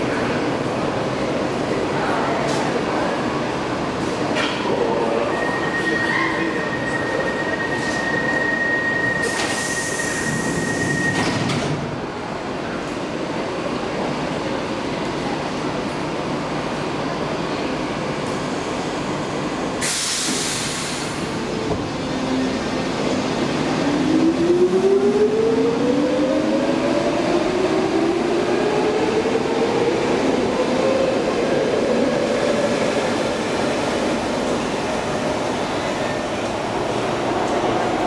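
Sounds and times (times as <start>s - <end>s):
compressed air hiss: 19.8s - 21.2s.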